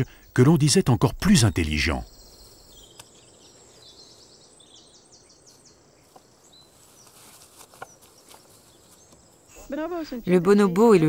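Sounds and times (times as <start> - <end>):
high chirping calls: 0.0 - 11.0
light snaps: 2.9 - 3.2.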